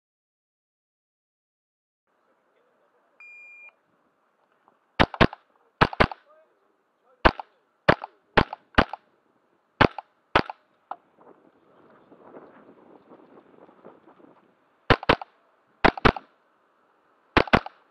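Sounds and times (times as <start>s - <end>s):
rifle gunshots: 5.0s - 6.3s, 7.2s - 9.1s, 9.8s - 10.6s, 14.9s - 16.3s, 17.4s - 17.9s.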